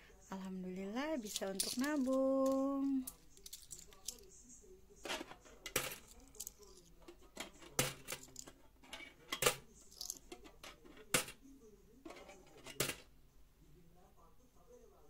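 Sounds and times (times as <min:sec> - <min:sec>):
coins clinking into tin box: 0:01.2 - 0:04.3, 0:05.7 - 0:10.4.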